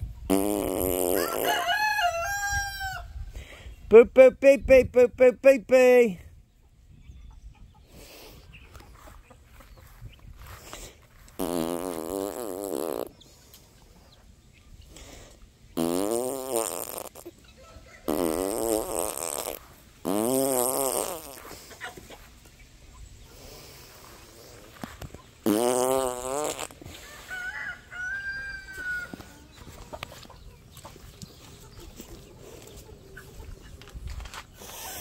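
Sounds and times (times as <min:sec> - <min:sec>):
rooster crowing: 0:01.2 - 0:03.1, 0:27.0 - 0:29.4.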